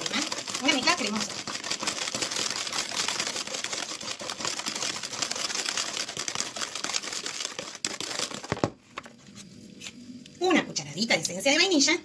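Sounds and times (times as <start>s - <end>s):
whisk clattering against bowl: 0.0s - 8.6s.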